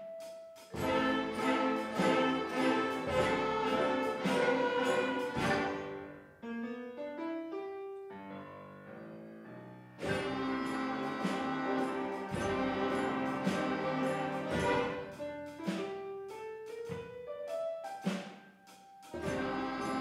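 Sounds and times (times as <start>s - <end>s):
school orchestra playing swing: 0.0s - 6.2s, 10.0s - 20.0s.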